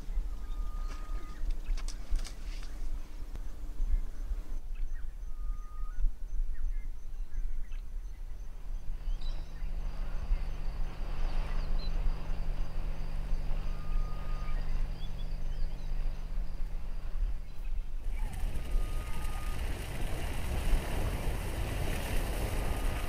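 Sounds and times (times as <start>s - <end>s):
bird calls: 0.0s - 20.2s.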